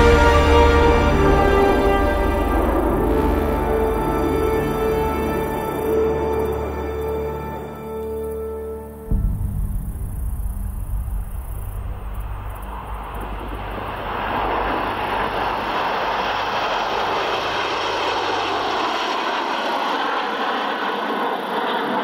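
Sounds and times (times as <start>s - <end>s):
jets flying past: 0.0s - 8.4s, 9.1s - 22.0s
low background music: 0.0s - 16.6s.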